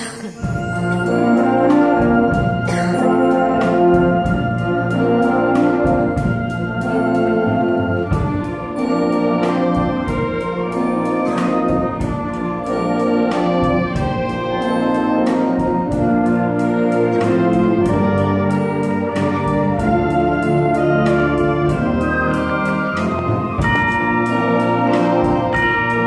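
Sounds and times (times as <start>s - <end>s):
concert band playing chords: 0.0s - 26.0s.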